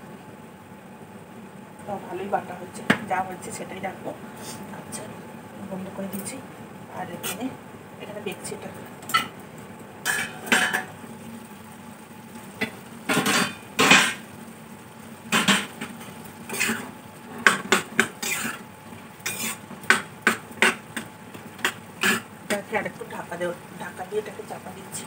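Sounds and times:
metal spatula scraping a wok: 0:16.5 - 0:18.6, 0:19.2 - 0:19.6.

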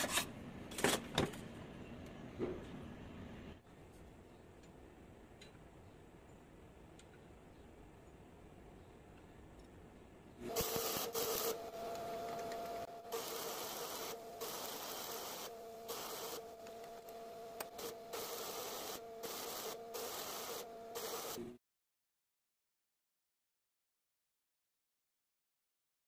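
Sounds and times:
welding arc crackling and hissing: 0:10.5 - 0:21.6.

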